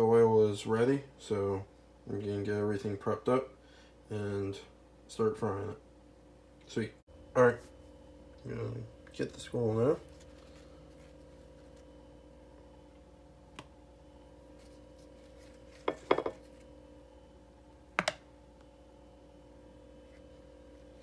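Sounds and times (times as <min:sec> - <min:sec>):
steady low hum: 0:00.0 - 0:21.0
plastic container clicks and knocks: 0:18.0 - 0:18.2.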